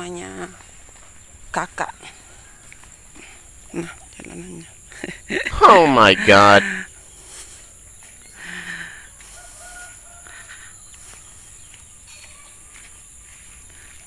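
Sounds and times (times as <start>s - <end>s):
high-pitched insect buzz: 9.2s - 13.4s.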